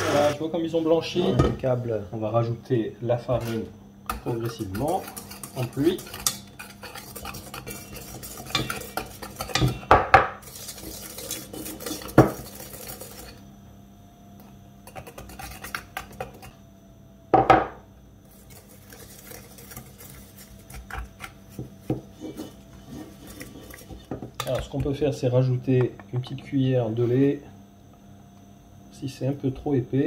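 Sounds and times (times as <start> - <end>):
whisk clinking in a metal bowl: 4.1 - 13.4, 14.8 - 16.5, 18.3 - 21.3, 21.9 - 25.0.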